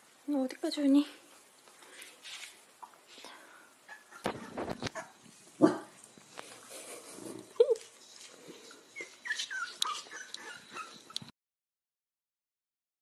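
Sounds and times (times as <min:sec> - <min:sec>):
puppies squeaking and whimpering: 0:03.8 - 0:05.3, 0:07.5 - 0:11.3.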